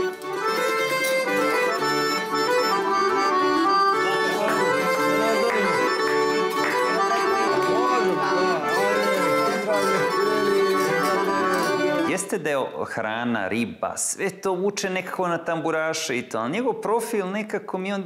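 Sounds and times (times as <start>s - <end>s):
plucked tambura: 0.0s - 3.2s, 4.1s - 12.1s
accordions playing a tune: 0.0s - 12.4s
person singing: 7.0s - 12.3s.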